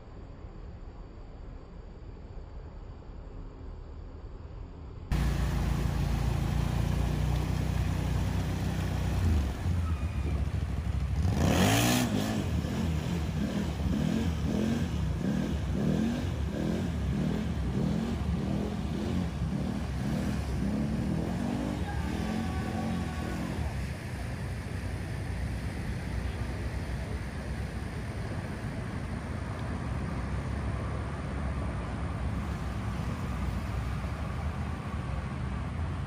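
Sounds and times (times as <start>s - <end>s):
atv engine revving: 5.1s - 24.0s
water rushing: 5.1s - 36.0s.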